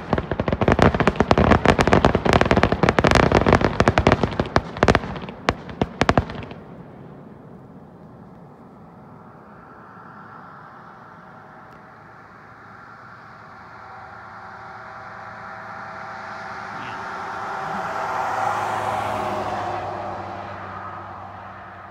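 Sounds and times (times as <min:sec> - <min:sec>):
car passing by: 0:08.5 - 0:21.9.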